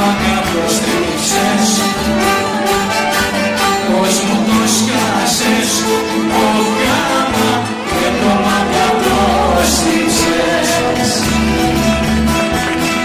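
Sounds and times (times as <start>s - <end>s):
choir singing: 0.0s - 2.8s, 3.7s - 12.6s
band playing: 0.0s - 13.0s.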